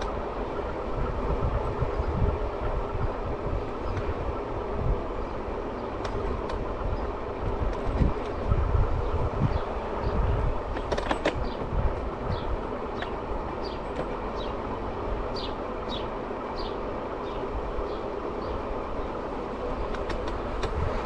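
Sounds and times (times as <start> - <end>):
scooter wheels rumbling and rattling: 0.0 - 15.5
sharp clicks: 19.9 - 20.8.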